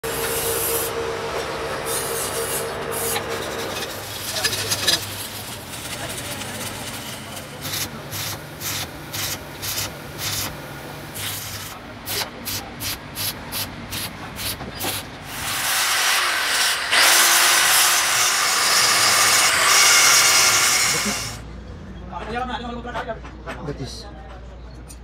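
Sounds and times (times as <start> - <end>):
angle grinder grinding metal: 0.0 - 6.9, 15.3 - 21.4
low welder hum: 0.0 - 12.3, 12.9 - 21.4
welding arc crackling: 1.9 - 13.0.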